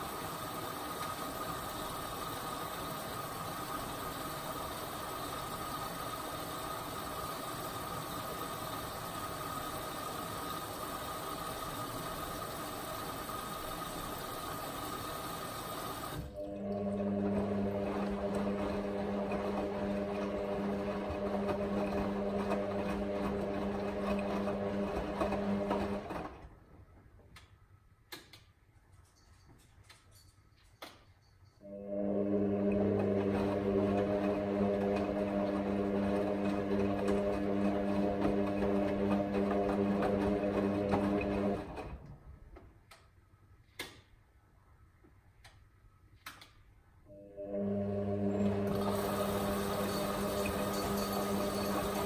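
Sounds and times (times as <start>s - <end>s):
washing machine drum humming: 0.0s - 26.4s, 31.9s - 42.0s, 47.4s - 52.0s
washing machine whirring: 0.0s - 27.5s, 31.6s - 43.0s, 47.0s - 52.0s.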